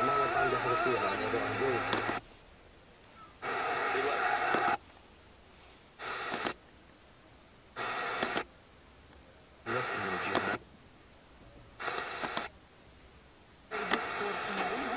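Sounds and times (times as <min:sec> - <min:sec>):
radio tuning click: 0:00.0 - 0:02.2, 0:03.4 - 0:04.8, 0:06.0 - 0:06.6, 0:07.8 - 0:08.5, 0:09.7 - 0:10.6, 0:11.8 - 0:12.6, 0:13.7 - 0:14.9
muffled radio station audio: 0:00.0 - 0:02.4, 0:03.2 - 0:04.9, 0:06.0 - 0:06.6, 0:07.7 - 0:10.8, 0:11.4 - 0:12.6, 0:13.6 - 0:14.9.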